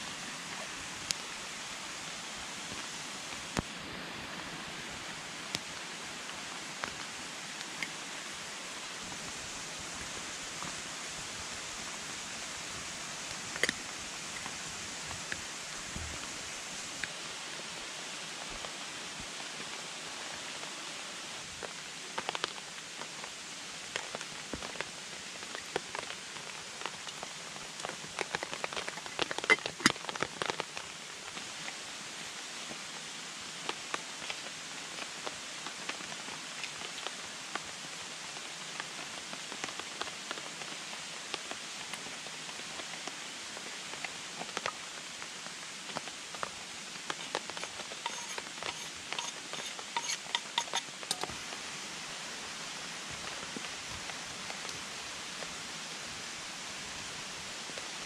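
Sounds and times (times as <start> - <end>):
rushing water and rain: 0.0 - 58.0.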